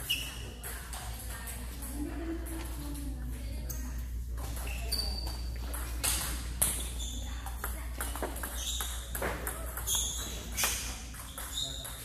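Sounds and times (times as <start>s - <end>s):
ping-pong ball clicking: 7.5s - 12.0s.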